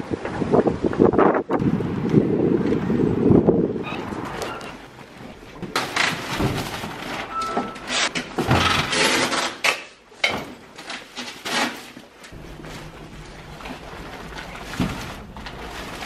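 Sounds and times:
parcels knocking and thudding: 5.1s - 16.0s
plastic packages rustling: 5.6s - 9.8s, 10.5s - 16.0s.

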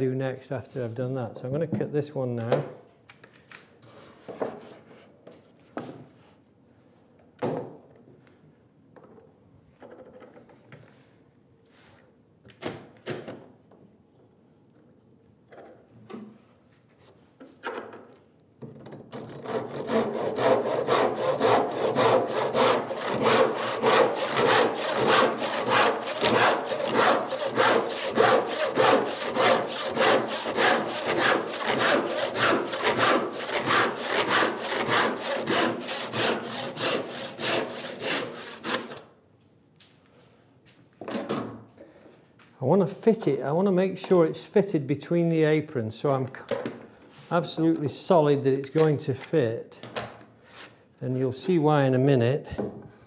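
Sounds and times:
handsaw sawing wood: 19.2s - 39.0s.

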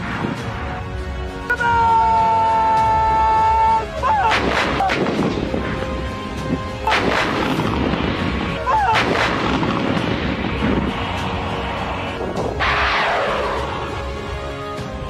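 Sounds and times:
artillery booms with echo: 6.8s - 11.0s.

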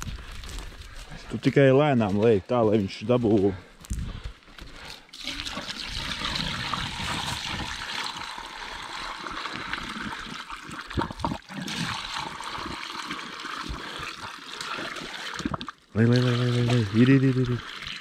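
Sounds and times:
water pouring into a pipe: 4.8s - 18.0s.

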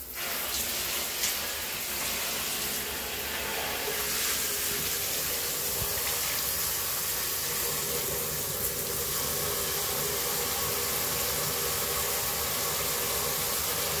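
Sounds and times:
shower head spraying water: 3.9s - 14.0s.

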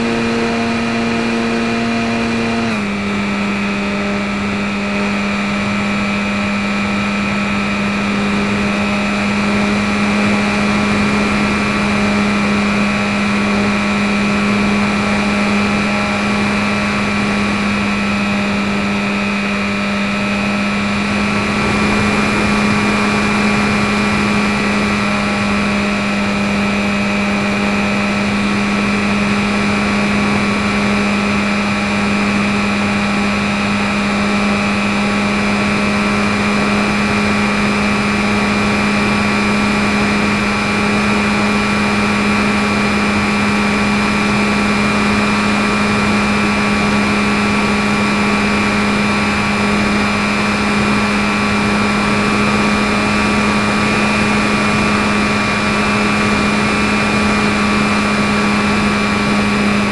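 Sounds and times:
electric motor propeller drone: 0.0s - 59.9s.

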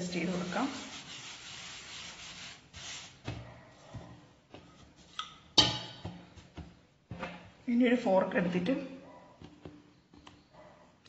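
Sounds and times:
hand rubbing flour on dough: 0.0s - 5.1s.

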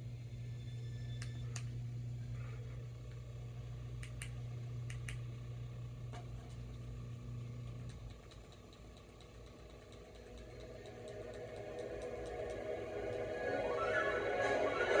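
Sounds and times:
low electrical hum: 0.0s - 15.0s
sharp clicks: 4.0s - 5.3s.

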